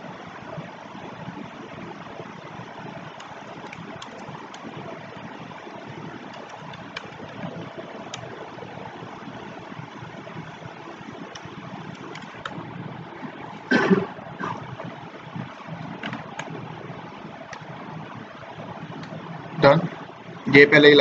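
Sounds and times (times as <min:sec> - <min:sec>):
steady background hiss: 0:00.0 - 0:21.0
keyboard typing clicks: 0:03.2 - 0:04.7, 0:06.2 - 0:08.3, 0:11.3 - 0:12.6, 0:16.0 - 0:16.6.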